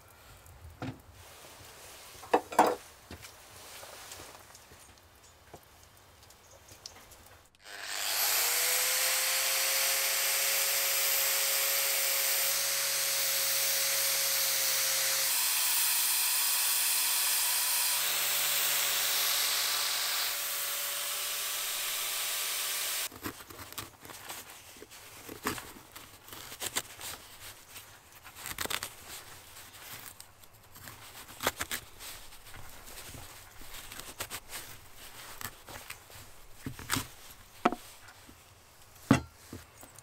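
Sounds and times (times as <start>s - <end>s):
angle grinder motor whining: 7.6s - 23.1s.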